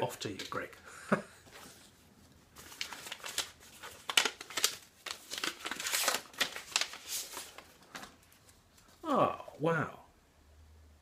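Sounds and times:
packaging crinkling and rustling: 2.5s - 9.0s.

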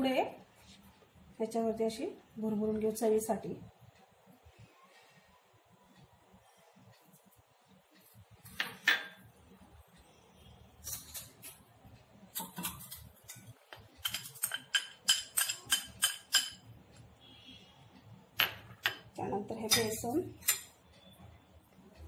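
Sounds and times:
glass bowl clinking on steel bowl: 14.0s - 16.6s.

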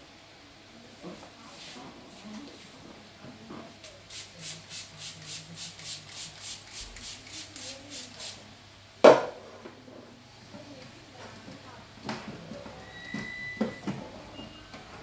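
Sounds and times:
spray can spritzing: 3.9s - 8.4s
sharp loud knock: 9.0s - 9.4s.

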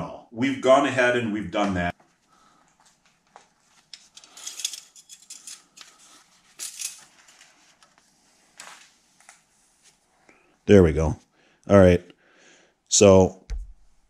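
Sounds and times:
towel wiping rustle: 6.2s - 10.3s.

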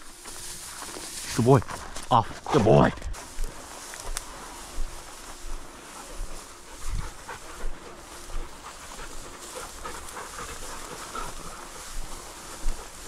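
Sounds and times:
dog panting hard: 5.7s - 13.0s.

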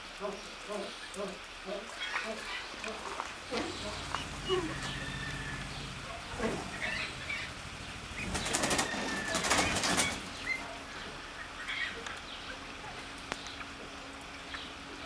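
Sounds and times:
faint bird calls: 0.2s - 15.0s
pheasant flapping wings: 6.3s - 10.6s.

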